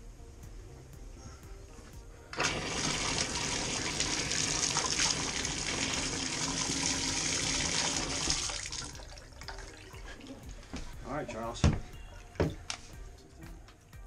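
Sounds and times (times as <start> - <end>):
water splashing into bathtub: 2.4 - 10.6.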